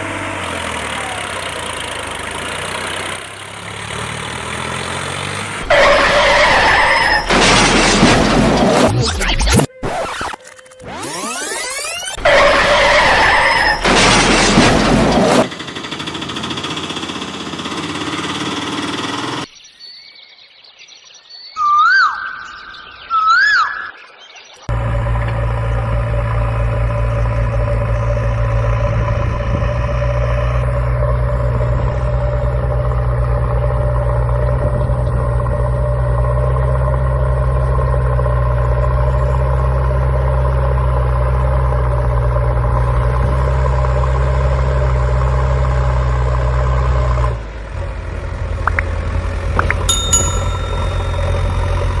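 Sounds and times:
toy excavator engine idling: 0:15.5 - 0:19.5, 0:48.6 - 0:52.0
bell-like ding: 0:49.8 - 0:52.0.

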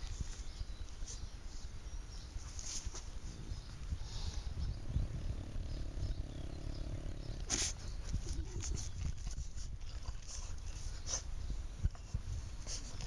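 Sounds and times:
dog sniffing and snuffling: 0:07.4 - 0:13.0.

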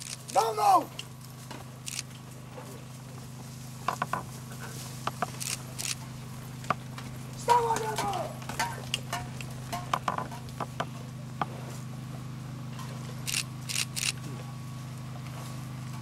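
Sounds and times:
camera shutter clicks: 0:00.0 - 0:00.4, 0:01.8 - 0:02.0, 0:05.4 - 0:06.0, 0:13.3 - 0:14.2
horses and riders moving clicks: 0:00.0 - 0:12.0
steady low hum: 0:00.0 - 0:16.0.

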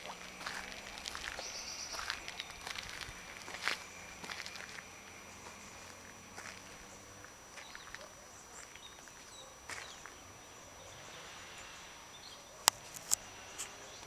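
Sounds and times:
faint bird chirps: 0:00.0 - 0:12.7.

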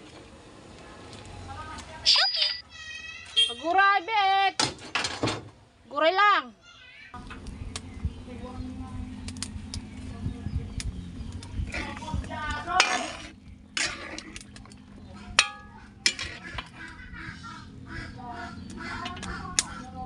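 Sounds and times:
metal spatula scraping a wok: 0:12.7 - 0:14.4, 0:15.3 - 0:16.8.

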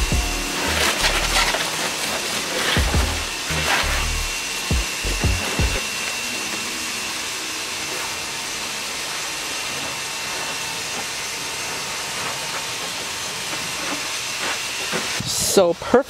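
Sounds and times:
hose spraying water on car: 0:00.5 - 0:04.2, 0:06.5 - 0:15.7.

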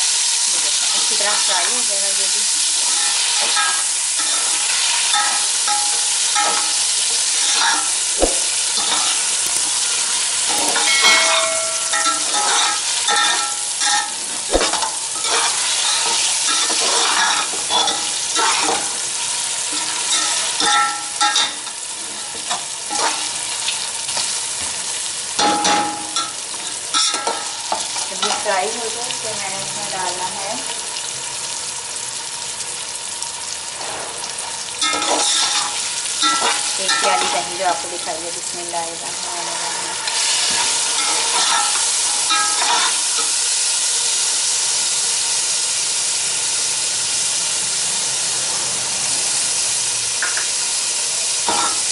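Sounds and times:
meat sizzling in oil: 0:00.0 - 0:51.9
sharp knocks on pot: 0:08.2 - 0:08.5.

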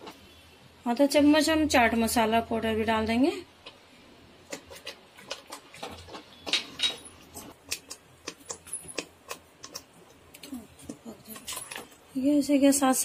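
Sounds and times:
gravy spluttering and popping: 0:03.6 - 0:12.2.

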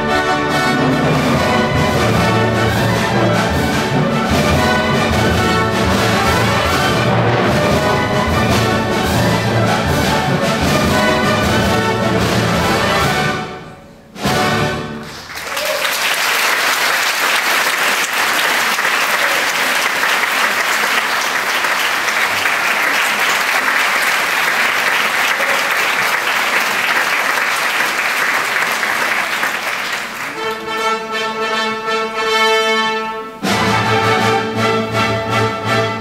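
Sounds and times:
orchestra playing: 0:00.0 - 0:15.5, 0:16.2 - 0:36.0
audience applause: 0:15.0 - 0:30.6.

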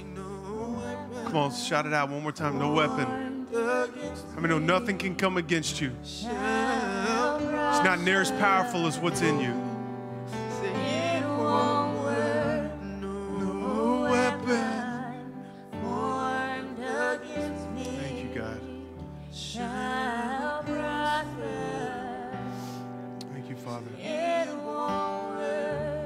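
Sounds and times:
man singing into microphone: 0:00.0 - 0:09.7, 0:10.5 - 0:15.2.

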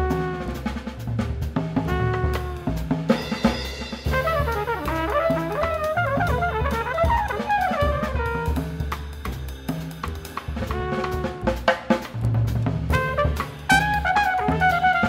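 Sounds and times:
trumpet: 0:00.0 - 0:01.1, 0:01.8 - 0:08.9, 0:10.5 - 0:12.1, 0:12.9 - 0:15.0
double bass: 0:00.0 - 0:03.2, 0:04.0 - 0:15.0
drum kit with cymbals: 0:00.0 - 0:15.0.

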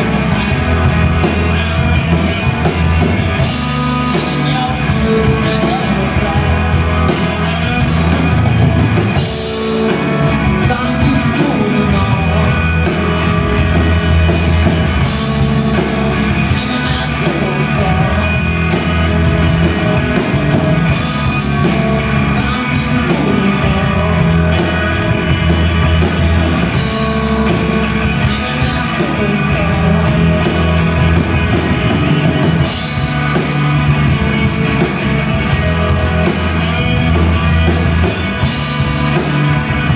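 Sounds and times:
man singing lead vocals: 0:00.0 - 0:08.8, 0:09.4 - 0:14.2, 0:15.0 - 0:25.7, 0:26.5 - 0:31.4
bass guitar: 0:00.0 - 0:39.9
drum kit with cymbal hits: 0:00.0 - 0:39.9
electric guitar: 0:00.0 - 0:39.9.

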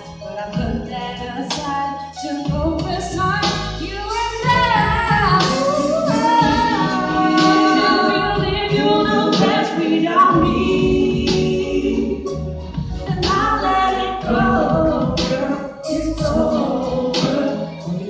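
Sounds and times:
sung bass line: 0:02.5 - 0:18.0
vocal group singing in harmony: 0:04.4 - 0:18.0.

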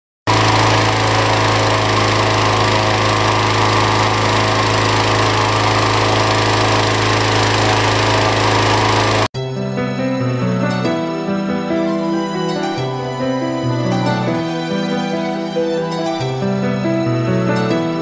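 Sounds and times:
engine hum: 0:00.3 - 0:09.3
loud rush of air: 0:00.3 - 0:09.3.

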